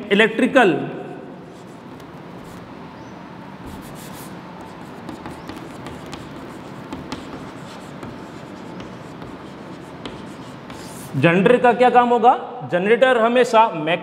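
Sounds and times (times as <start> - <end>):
chalk writing on a chalkboard: 1.4 - 2.8, 3.6 - 11.2.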